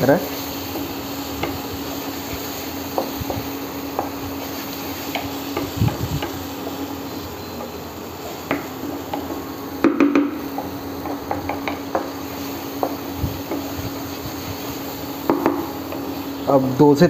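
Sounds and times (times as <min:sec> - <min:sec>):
cooktop hum: 0:00.0 - 0:17.0
faint sizzle: 0:00.0 - 0:17.0
spatula knocking against pan: 0:08.5 - 0:12.2, 0:12.8 - 0:13.7, 0:15.3 - 0:16.0.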